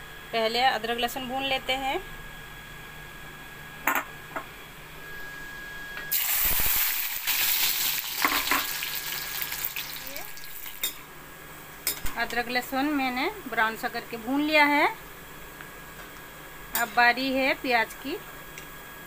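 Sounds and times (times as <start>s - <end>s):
food sizzling in hot oil: 6.1s - 11.1s.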